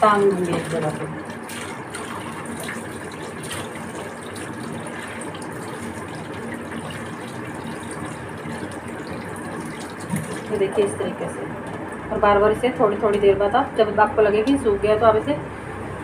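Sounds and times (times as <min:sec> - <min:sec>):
tap water pouring through cloth: 0:00.2 - 0:10.6.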